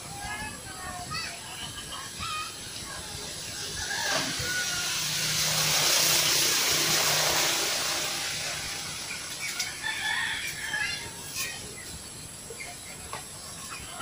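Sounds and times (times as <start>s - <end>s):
road vehicle passing by: 2.6s - 11.1s.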